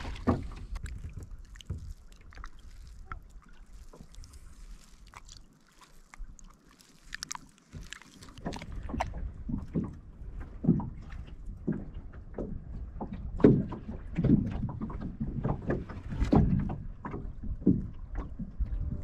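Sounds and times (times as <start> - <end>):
fish handled in landing net: 0.0 - 9.9
low rumble: 16.2 - 19.0.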